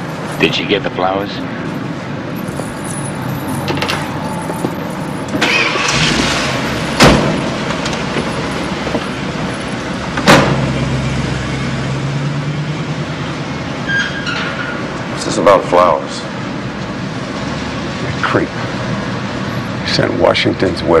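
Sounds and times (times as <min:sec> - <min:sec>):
van engine running: 0:01.9 - 0:13.8
van doors slamming shut: 0:05.3 - 0:08.2, 0:10.2 - 0:10.8.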